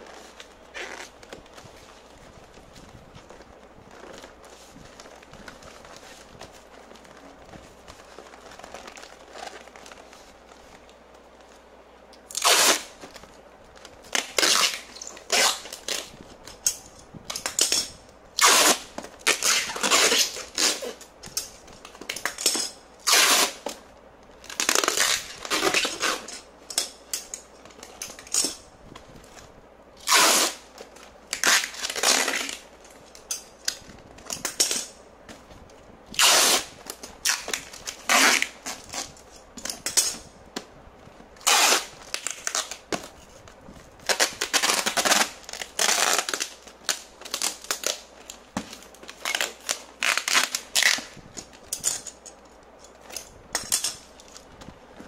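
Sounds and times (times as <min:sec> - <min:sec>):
packing tape ripping: 0:12.2 - 0:23.8, 0:24.4 - 0:28.6, 0:30.0 - 0:35.0, 0:36.1 - 0:40.3, 0:41.4 - 0:43.2, 0:44.0 - 0:54.5.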